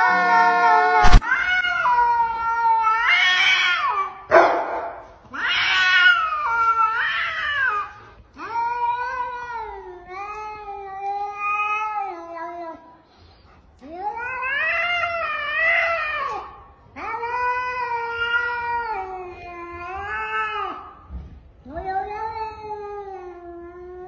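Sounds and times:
cats yowling: 0.0s - 4.3s, 5.3s - 12.8s, 13.8s - 21.1s.

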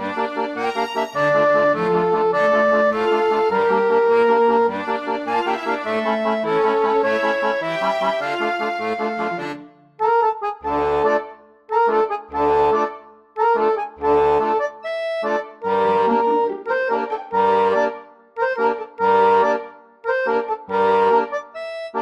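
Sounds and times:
low bass notes: 0.0s - 11.1s
light melody over chords: 11.9s - 22.0s.

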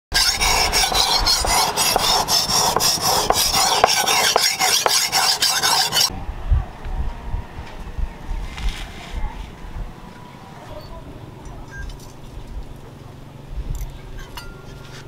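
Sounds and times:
blade scraping on whetstone: 0.1s - 6.1s.

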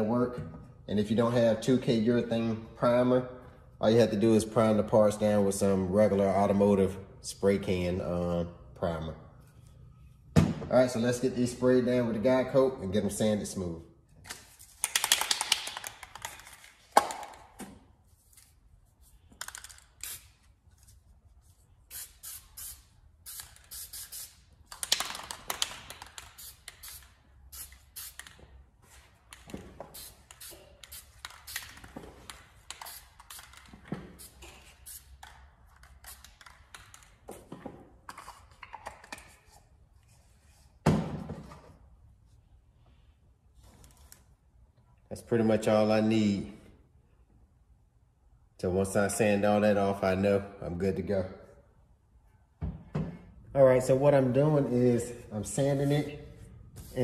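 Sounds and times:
aerosol spray can hissing: 26.2s - 28.4s.

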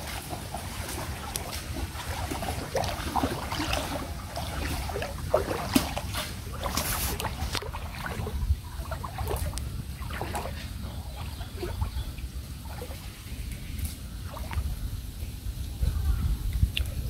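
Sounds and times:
water sloshing around wading legs: 0.0s - 15.3s.

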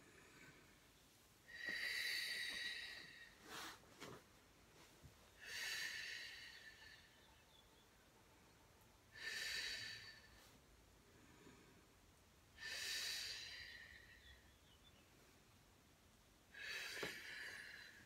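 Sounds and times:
woman breathing deeply: 1.5s - 3.8s, 5.3s - 7.3s, 9.1s - 14.4s, 16.5s - 18.0s.

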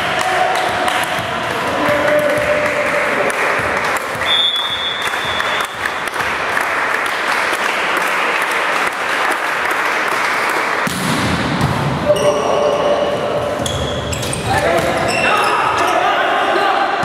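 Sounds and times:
applause: 0.1s - 10.8s.

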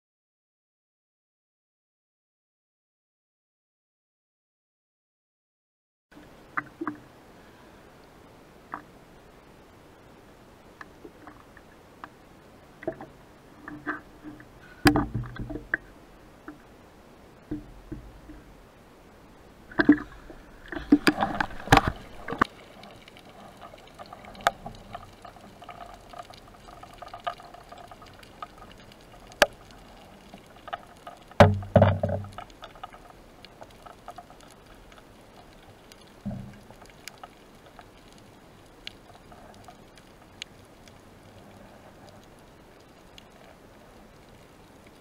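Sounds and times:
water splashing and sloshing: 6.2s - 9.2s, 9.8s - 45.0s
underwater gurgling burst: 19.6s - 37.2s
underwater clicks: 19.7s - 43.5s.

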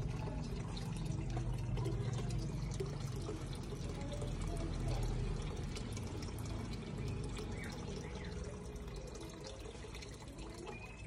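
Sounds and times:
trickling splashing water: 0.0s - 11.0s
water dripping clicks: 0.0s - 11.0s
faint bird chirps: 7.0s - 9.8s, 10.4s - 11.0s.

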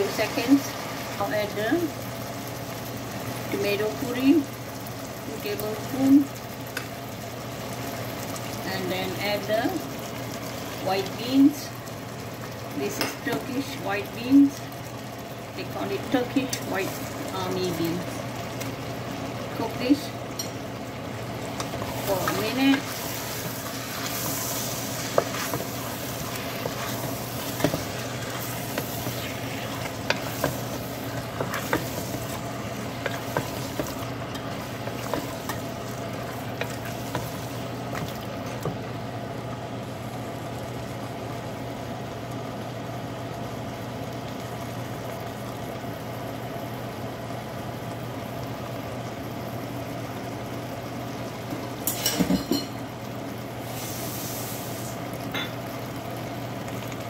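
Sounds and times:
food sizzling in a metal pot: 0.0s - 41.3s, 50.3s - 57.0s
wooden spatula scraping a pot: 22.0s - 32.4s, 33.0s - 35.6s.

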